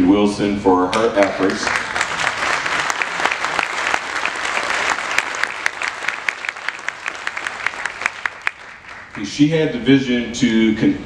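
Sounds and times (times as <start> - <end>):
audience applauding: 1.2 - 9.5.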